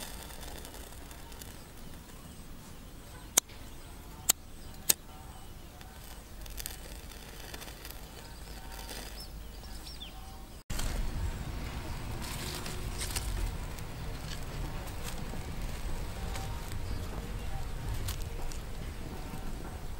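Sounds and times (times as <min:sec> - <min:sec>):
lighter flint clicks: 0:00.0 - 0:02.1
bird chirping: 0:00.0 - 0:19.9
quiet outdoor ambience: 0:00.0 - 0:19.9.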